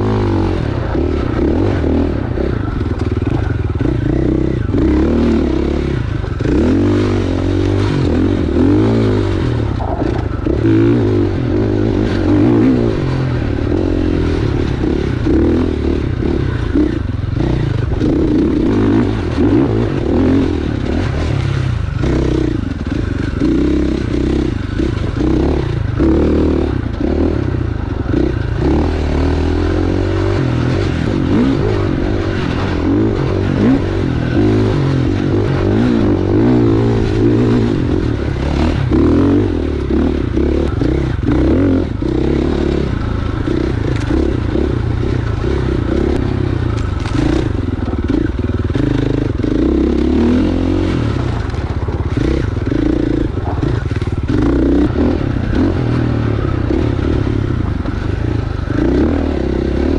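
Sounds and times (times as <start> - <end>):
dirt bike engine revving: 0.0 - 59.9
bike knocking and rattling: 51.3 - 55.5.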